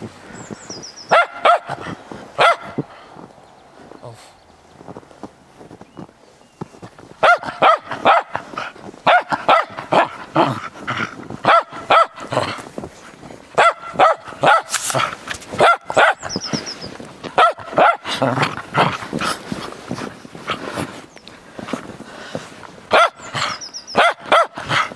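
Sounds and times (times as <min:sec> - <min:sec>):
dog barking sharply: 0:01.1 - 0:02.8, 0:07.2 - 0:08.4, 0:09.0 - 0:10.6, 0:11.4 - 0:12.2, 0:13.6 - 0:16.3, 0:17.4 - 0:18.1, 0:22.9 - 0:23.2, 0:24.0 - 0:24.8.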